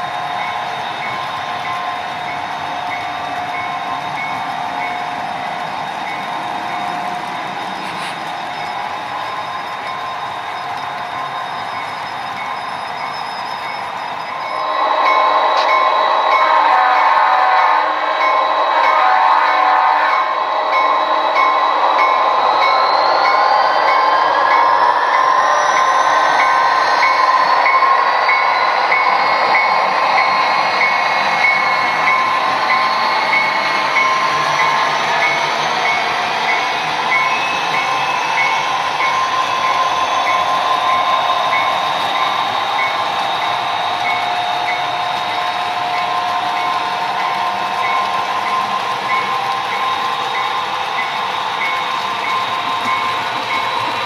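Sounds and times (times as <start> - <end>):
model train wheels rolling on track: 0.0 - 54.0
rising whine: 13.9 - 54.0.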